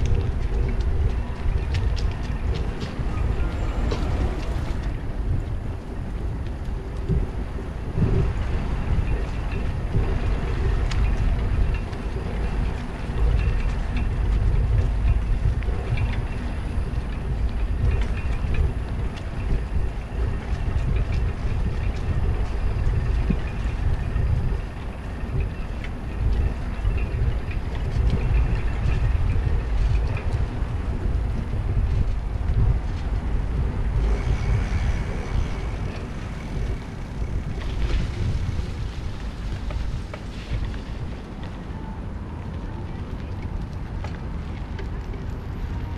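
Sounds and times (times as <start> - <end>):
bicycle tyres rolling on brick paving: 0.0 - 45.9
wind buffeting microphone: 0.0 - 45.9.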